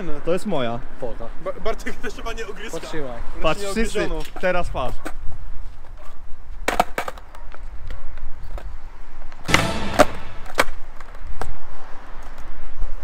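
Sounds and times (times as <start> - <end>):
skateboard wheels rolling: 4.0 - 13.0
skateboard clacking on brick paving: 4.1 - 9.5.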